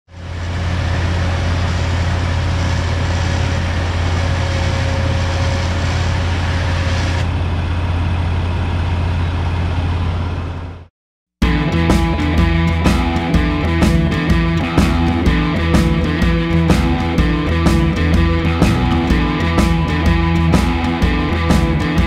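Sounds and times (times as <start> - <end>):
electric winch reeling in line: 0.1 - 10.7
low engine hum: 0.1 - 22.0.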